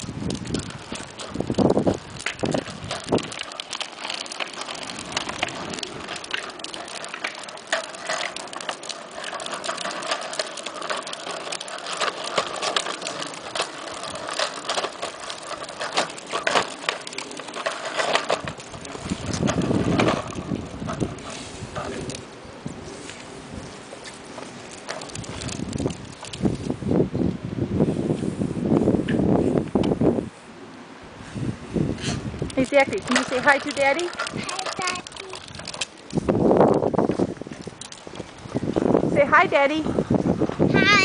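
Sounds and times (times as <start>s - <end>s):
plastic wheels rattling on concrete: 0.0s - 26.8s, 31.8s - 41.0s.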